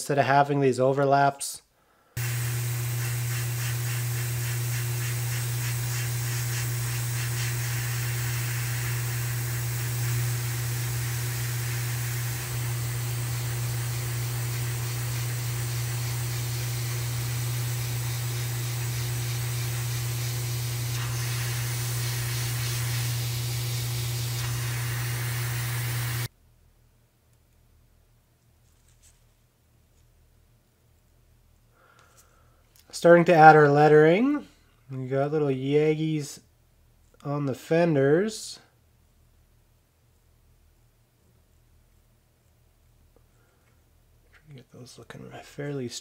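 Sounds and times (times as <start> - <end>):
airbrush spraying: 2.2 - 26.3
steady low hum: 2.2 - 26.3.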